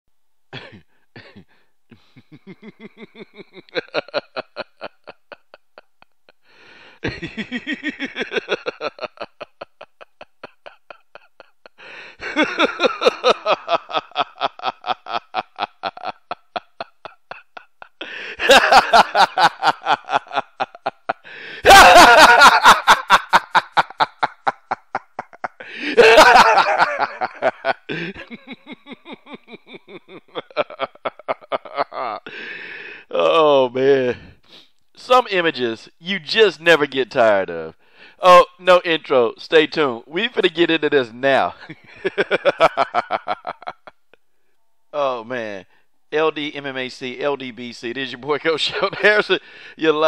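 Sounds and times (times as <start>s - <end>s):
person laughing: 0.6s - 6.2s, 7.0s - 32.4s.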